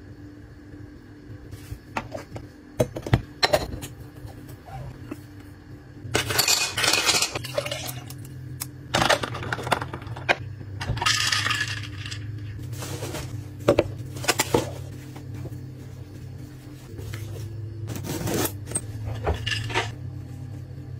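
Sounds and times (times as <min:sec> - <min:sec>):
lid scraping and clinking: 0:18.0 - 0:19.9.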